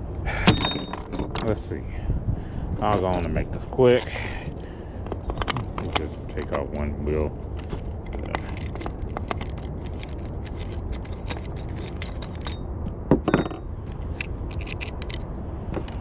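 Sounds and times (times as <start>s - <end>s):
metallic clicks and scrapes of tool: 8.0s - 12.6s, 13.9s - 15.3s.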